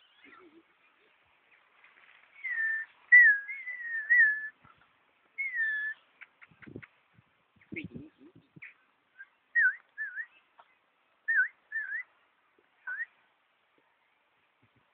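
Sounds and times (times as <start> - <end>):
soft low rustles: 0.3 - 3.2
magpie whistling: 2.4 - 4.6, 5.4 - 6.0, 9.2 - 10.4, 11.3 - 12.1, 12.8 - 13.1.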